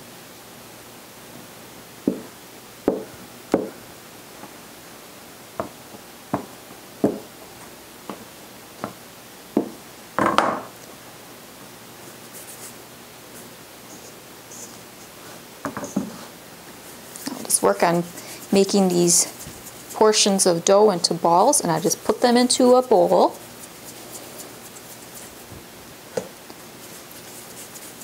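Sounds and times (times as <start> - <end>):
bench scraper knocking on mat: 2.9 - 3.8
scraper clatter: 17.1 - 20.7, 21.6 - 25.5, 26.8 - 28.0.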